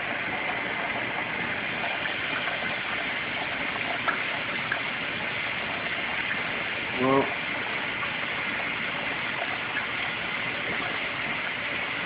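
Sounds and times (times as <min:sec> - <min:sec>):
aquarium filter water gushing: 0:00.0 - 0:12.0.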